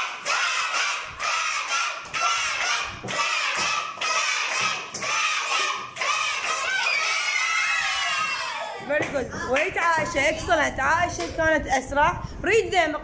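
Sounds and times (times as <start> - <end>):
children shouting and cheering: 0.0 - 8.9.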